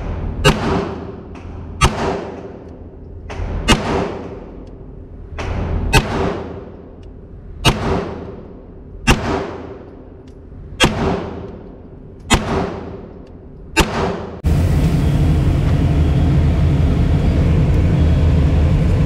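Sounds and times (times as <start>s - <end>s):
pistol shots echoing indoors: 0.1s - 14.4s
steady low rushing noise: 14.3s - 19.0s.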